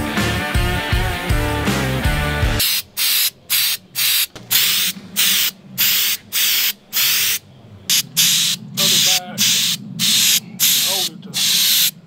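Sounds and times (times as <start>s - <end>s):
aerosol spray hiss: 2.6s - 12.0s.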